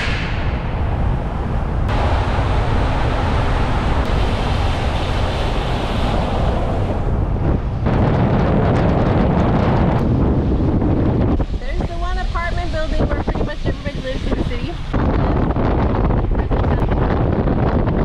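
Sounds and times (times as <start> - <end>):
wind over microphone: 0.0 - 18.0
tyres on wet road: 1.9 - 7.6.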